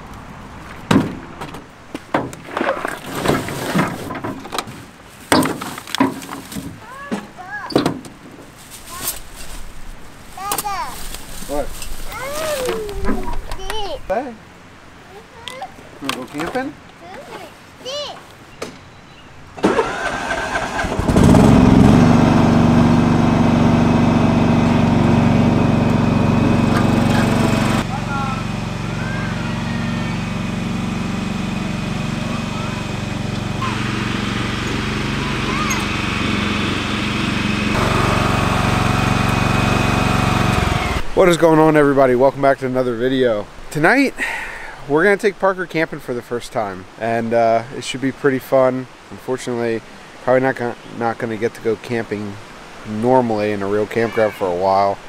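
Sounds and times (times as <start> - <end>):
plastic bags rustling: 8.4 - 13.4
small engine revving: 19.6 - 41.1.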